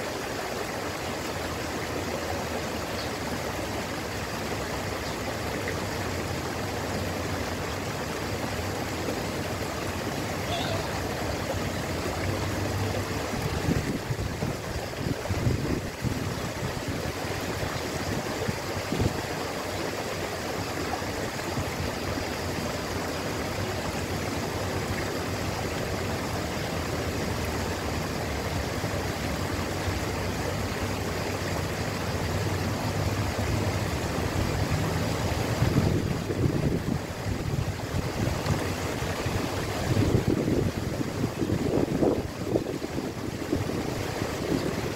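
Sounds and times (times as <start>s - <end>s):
small waterfall splashing: 0.0s - 44.9s.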